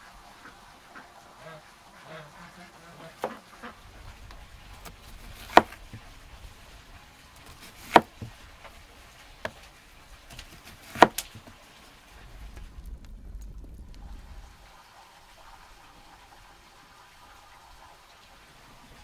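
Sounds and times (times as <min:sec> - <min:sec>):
knife slicing onion: 0:04.8 - 0:05.8, 0:07.4 - 0:08.4, 0:10.3 - 0:11.4
knife striking cutting board: 0:05.4 - 0:05.8, 0:07.4 - 0:08.3, 0:10.6 - 0:11.3.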